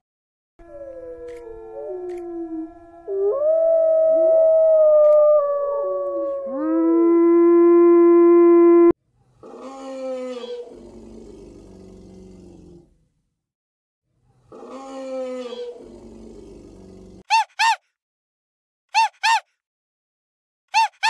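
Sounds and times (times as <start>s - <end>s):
chorus of canid howls: 0.6s - 8.6s.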